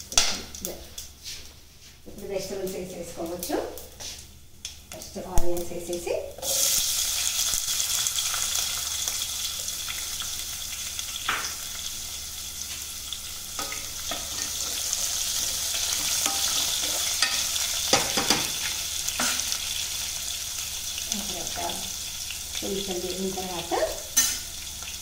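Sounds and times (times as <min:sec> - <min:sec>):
onions sizzling in hot oil: 0:02.2 - 0:25.0.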